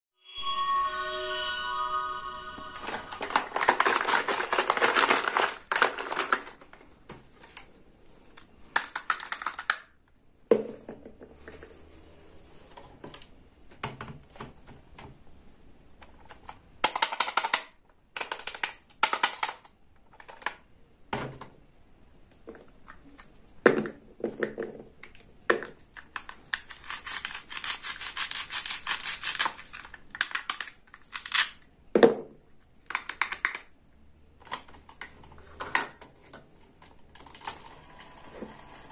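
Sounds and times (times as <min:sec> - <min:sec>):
plastic toy pieces clicking and rattling: 0:03.2 - 0:06.7, 0:08.7 - 0:10.0, 0:16.0 - 0:20.6, 0:25.1 - 0:31.6, 0:32.8 - 0:33.8.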